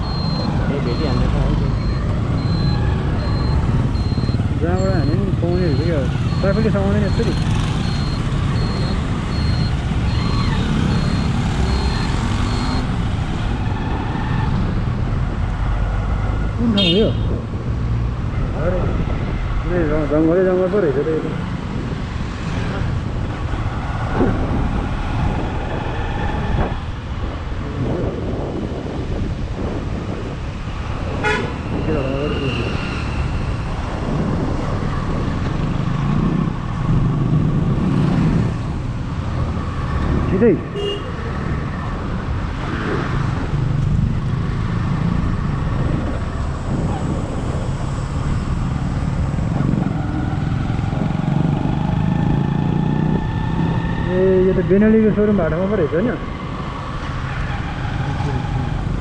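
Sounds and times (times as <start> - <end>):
high electronic beep: 0.0 - 12.9
vehicle road and wind rumble: 0.0 - 59.0.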